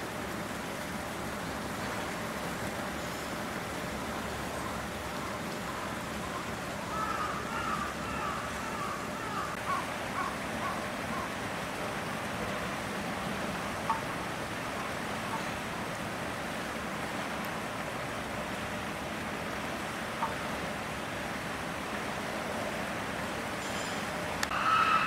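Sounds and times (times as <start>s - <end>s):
outdoor background noise: 0.0s - 25.0s
short wavering calls: 4.6s - 11.4s, 23.6s - 25.0s.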